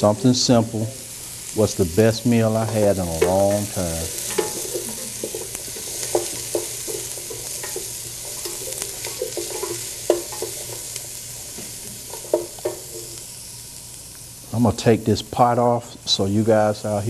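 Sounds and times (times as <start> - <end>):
vegetables sizzling in a pot: 0.0 - 17.0
wooden spoon knocking against pot: 4.2 - 10.6.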